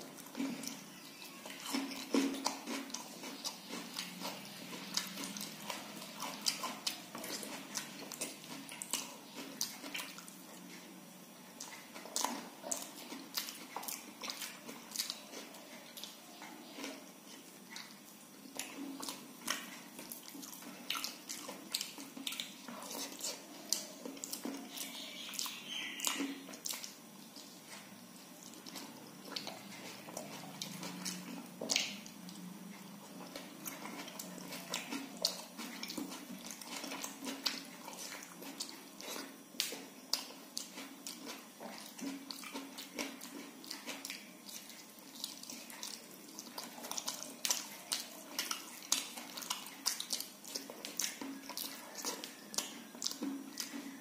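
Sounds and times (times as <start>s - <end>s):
fingers mixing soft food: 0.0s - 54.0s
mouth chewing: 0.0s - 54.0s.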